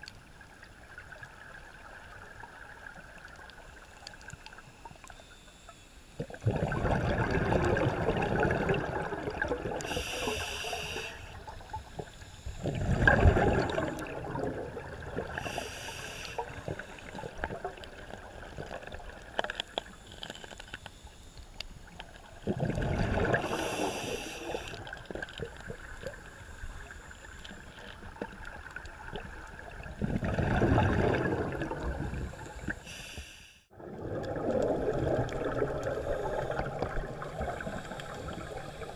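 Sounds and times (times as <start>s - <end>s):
exhaled bubbles rushing: 6.2s - 10.0s, 12.6s - 15.5s, 22.4s - 26.2s, 28.2s - 32.8s, 33.7s - 38.9s
regulator inhale hiss: 9.8s - 12.8s, 15.3s - 17.3s, 23.4s - 25.0s, 32.1s - 33.7s, 37.4s - 38.9s.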